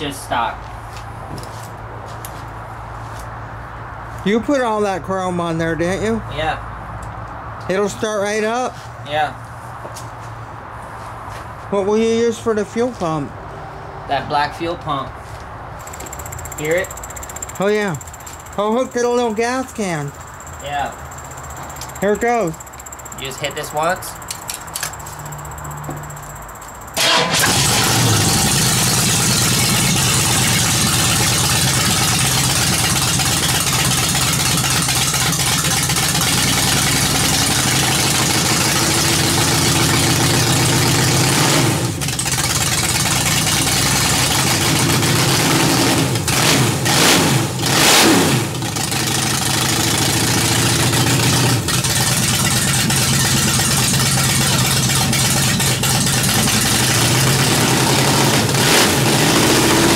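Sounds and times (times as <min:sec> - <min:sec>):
engine idling and revving: 0:15.8 - 0:59.9.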